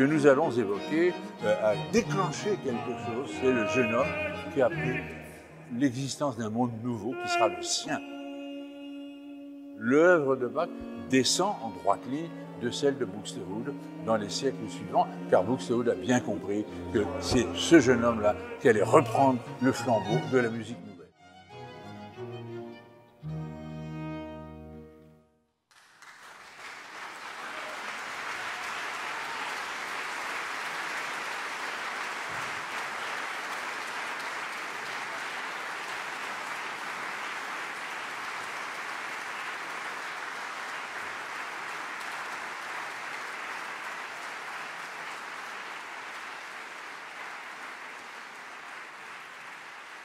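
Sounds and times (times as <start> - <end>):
audience applauding: 0.0 - 5.2, 25.7 - 50.0
string orchestra chord: 0.0 - 5.8, 10.4 - 25.1.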